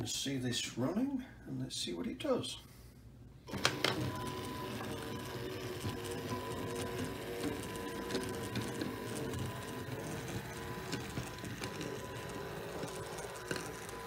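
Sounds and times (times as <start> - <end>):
plastic wheels clicking on track: 3.5 - 14.0
small electric motor whine: 3.5 - 14.0.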